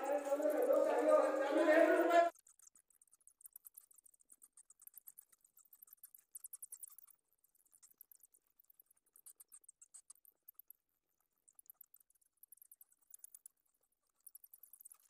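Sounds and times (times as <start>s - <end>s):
bats clicking and squeaking: 0.0s - 10.7s, 11.4s - 15.0s.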